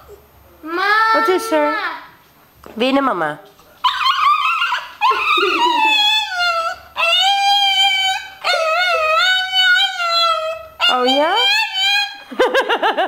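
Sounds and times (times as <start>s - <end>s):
small dog howling: 3.8s - 12.2s.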